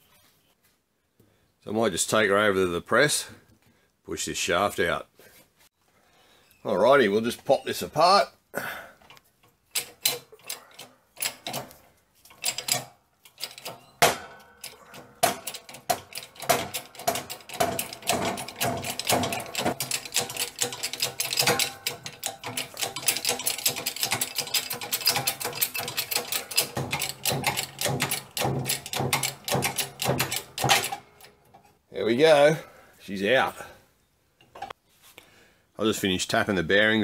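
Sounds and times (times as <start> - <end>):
shop press clicks and knocks: 12.4 - 31.3.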